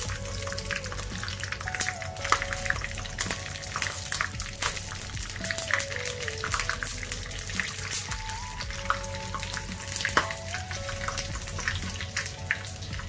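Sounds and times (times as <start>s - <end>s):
chillies sizzling and crackling in oil: 0.0s - 13.0s
soft background music: 0.0s - 13.0s.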